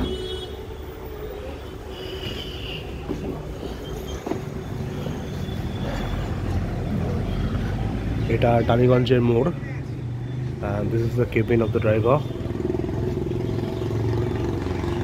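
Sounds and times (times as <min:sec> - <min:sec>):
tram rumbling on rails: 0:00.0 - 0:08.8.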